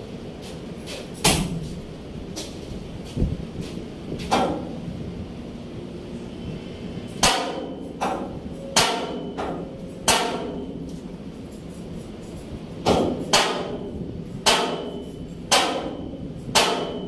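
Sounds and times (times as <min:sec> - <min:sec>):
hammer striking metal: 0:07.2 - 0:10.9, 0:12.8 - 0:17.0.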